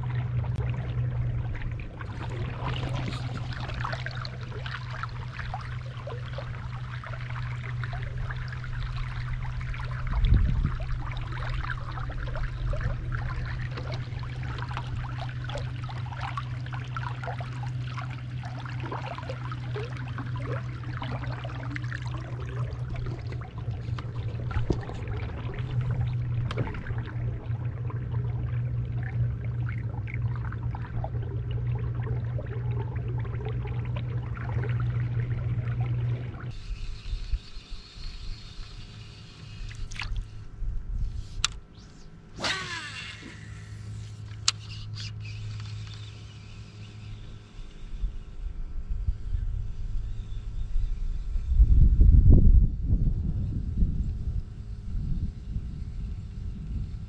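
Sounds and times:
water splashing along boat hull: 0.0s - 38.0s, 39.0s - 40.4s
steady low hum: 0.0s - 57.0s.

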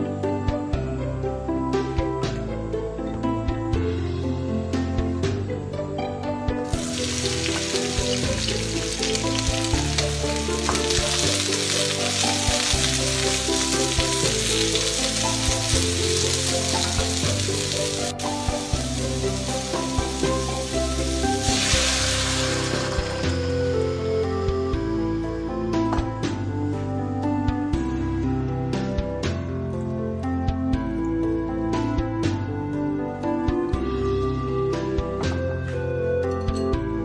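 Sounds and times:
broth pouring splash: 6.7s - 23.4s
vegetables sizzling in hot oil: 6.7s - 23.8s.

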